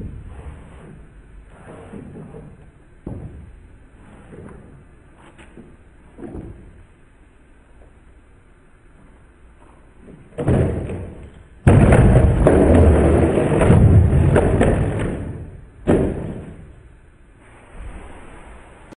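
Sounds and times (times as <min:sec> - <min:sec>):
skateboard crashing clatter: 0:10.2 - 0:16.8.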